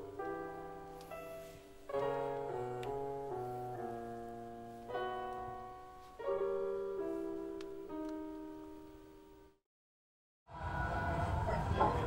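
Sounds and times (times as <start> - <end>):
slow piano music: 0.0 - 9.6.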